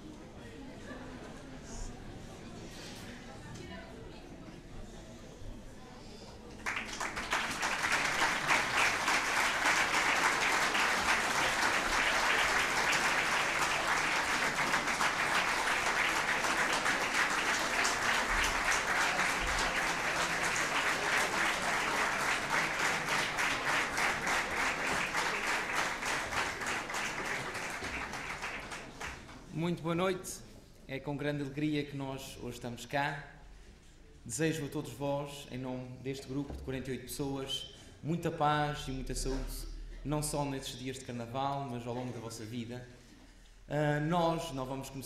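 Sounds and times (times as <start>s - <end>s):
audience applauding: 6.6s - 29.4s.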